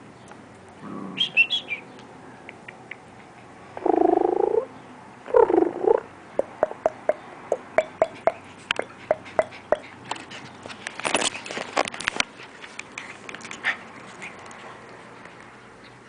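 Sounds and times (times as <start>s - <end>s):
small dog play-growling: 0.8s - 1.2s.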